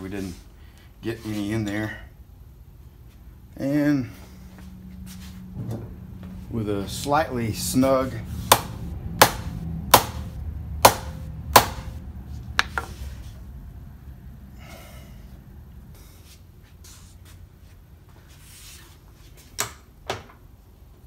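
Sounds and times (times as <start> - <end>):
low machine hum: 0.0 - 16.3
sharp knocks of machine handles: 8.5 - 12.0.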